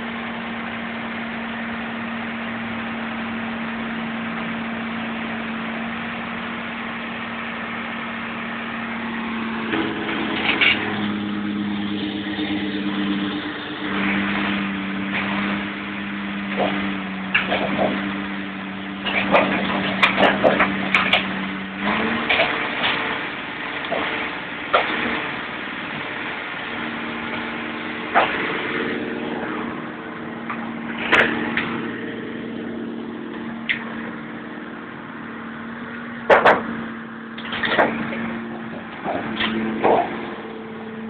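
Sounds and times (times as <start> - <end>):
engine humming: 0.0 - 41.0
metallic bangs and cracks: 16.5 - 18.3, 18.9 - 25.6.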